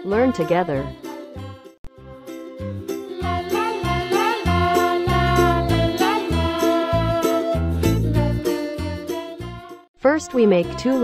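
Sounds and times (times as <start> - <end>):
jingly melody over bass line: 2.1 - 9.6.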